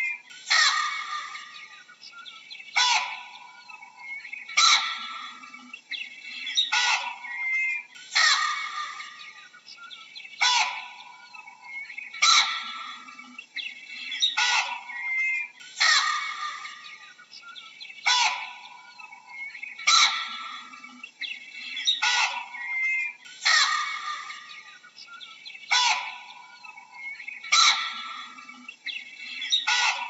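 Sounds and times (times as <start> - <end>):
baboon harsh calls: 0.0 - 1.5, 2.8 - 3.5, 4.6 - 5.4, 6.6 - 9.2, 10.4 - 11.2, 12.2 - 13.1, 14.2 - 16.8, 18.0 - 18.8, 19.8 - 20.8, 21.8 - 24.6, 25.7 - 26.4, 27.0 - 28.4, 29.4 - 30.0.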